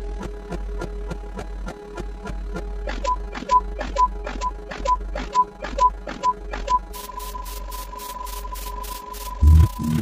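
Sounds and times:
high electronic beep tone: 3.0 - 10.0.

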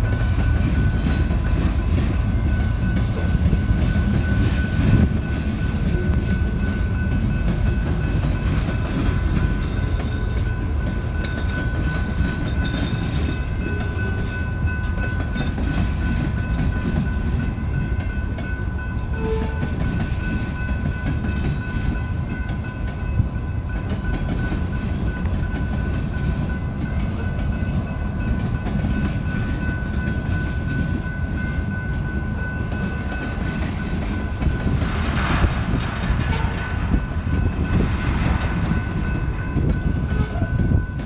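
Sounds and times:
high ringing tone: 0.0 - 34.8
train wheels rumbling on rail: 0.0 - 41.0.

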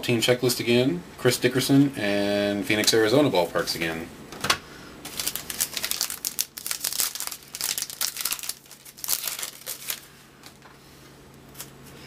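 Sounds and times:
foil wrapper crinkling and tearing: 5.0 - 10.6.

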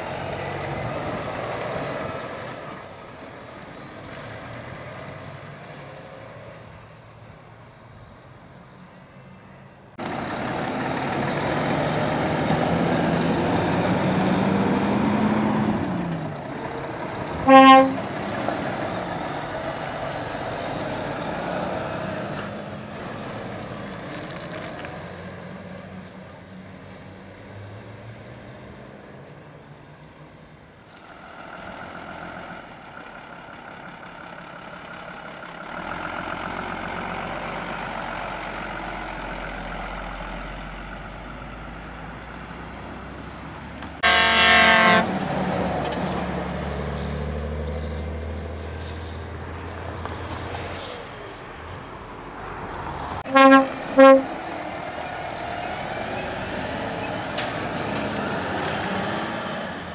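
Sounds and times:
lorry engines passing: 0.0 - 59.9
truck air horn blasts: 17.4 - 18.1, 44.0 - 45.2, 53.2 - 54.6.

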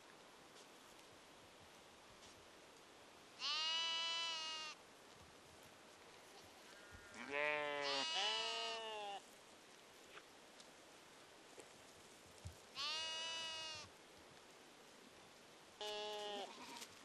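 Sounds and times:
sheep bleating: 3.4 - 4.8, 7.0 - 9.2, 12.8 - 13.9, 15.8 - 16.9.

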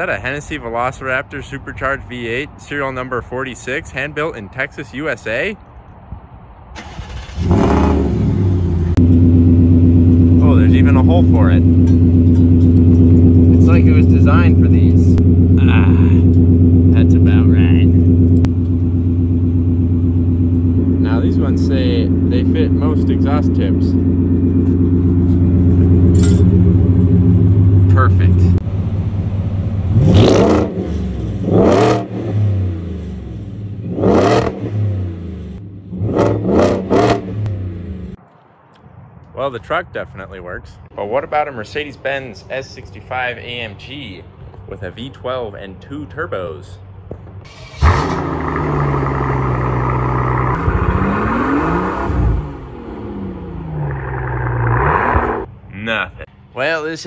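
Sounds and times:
car engine idling and revving: 6.8 - 38.3, 43.5 - 55.6.

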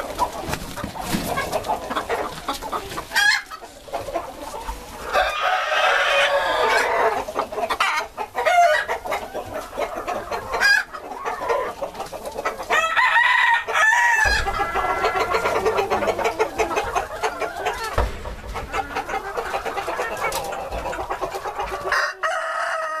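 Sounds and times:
chickens clucking: 0.0 - 23.0
rooster crowing: 5.1 - 7.1, 12.7 - 16.2, 21.9 - 23.0.

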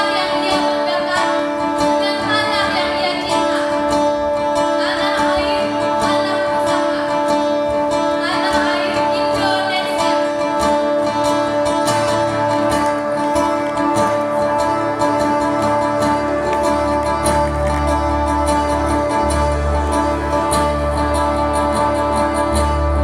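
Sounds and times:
person singing: 0.0 - 23.0
plucked strings: 0.0 - 23.0.

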